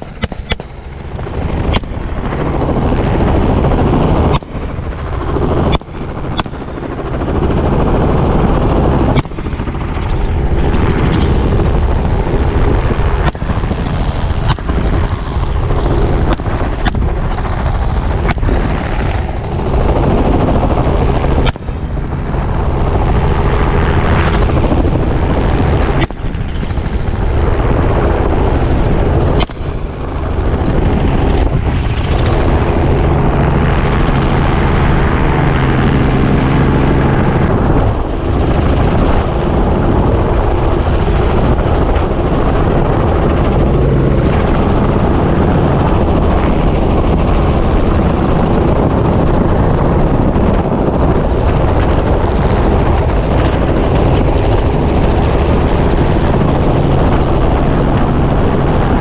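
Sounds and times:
sharp gunshots: 0:00.0 - 0:07.2, 0:09.0 - 0:17.4, 0:24.4 - 0:26.4, 0:29.3 - 0:29.8
helicopter rotor and turbine: 0:00.0 - 0:59.0.

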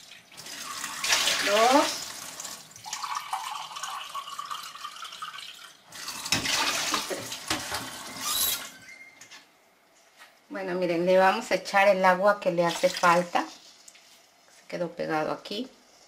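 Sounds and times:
water splashing: 0:00.0 - 0:03.6
tap water running into container: 0:00.0 - 0:08.2.

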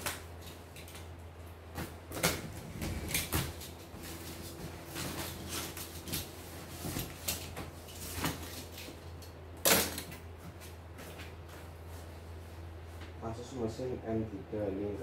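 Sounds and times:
steady low hum: 0:00.0 - 0:15.0
cardboard and plastic rustling: 0:01.7 - 0:09.1.

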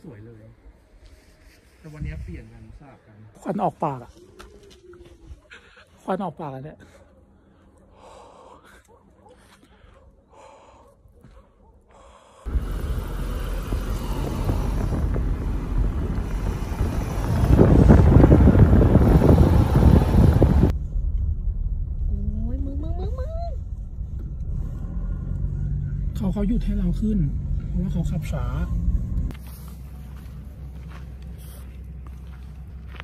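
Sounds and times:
soft breaths: 0:06.8 - 0:12.5
vehicle engine rumble: 0:12.5 - 0:33.0.

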